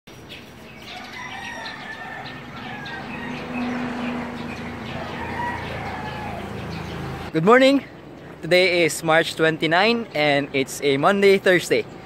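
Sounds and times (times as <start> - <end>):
small birds chirping: 0.1 - 12.0
roosters crowing: 0.7 - 7.3.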